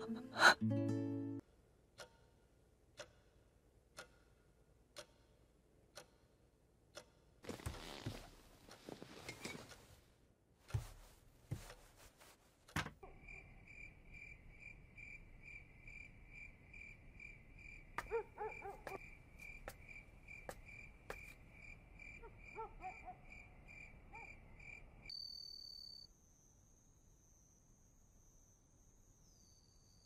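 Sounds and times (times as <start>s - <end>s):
crickets chirping: 13.0s - 30.0s
high insect trill: 24.6s - 30.0s.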